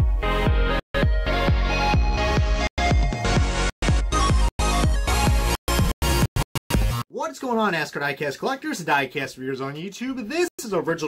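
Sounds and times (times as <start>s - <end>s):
electronic music with bass hits: 0.0s - 7.1s.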